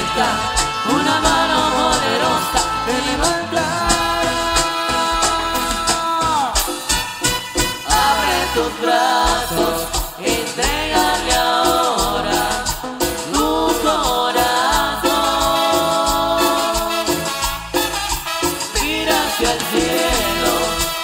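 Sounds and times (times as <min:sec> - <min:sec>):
men singing in harmony: 0:00.0 - 0:06.9, 0:07.8 - 0:17.5, 0:18.3 - 0:21.0
live band with trumpets: 0:00.0 - 0:21.0.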